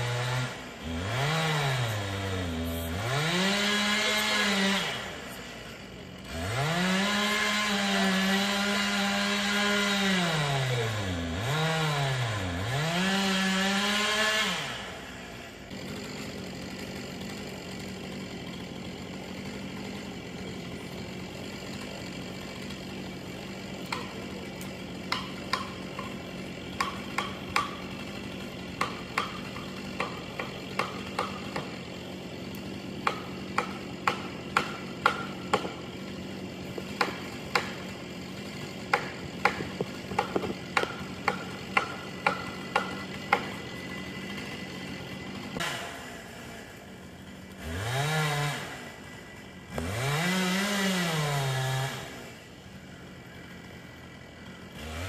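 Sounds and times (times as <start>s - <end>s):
chainsaw cutting wood: 0.0s - 55.0s
sharp knocks: 38.9s - 43.5s.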